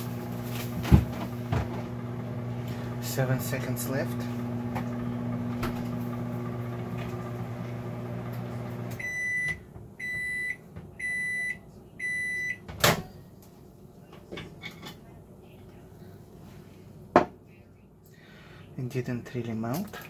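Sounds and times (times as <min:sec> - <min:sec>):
microwave oven humming: 0:00.0 - 0:13.1.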